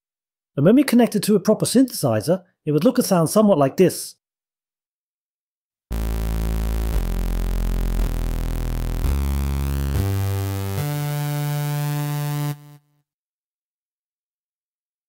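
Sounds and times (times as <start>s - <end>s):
buzzy synthesizer notes: 5.9s - 12.9s.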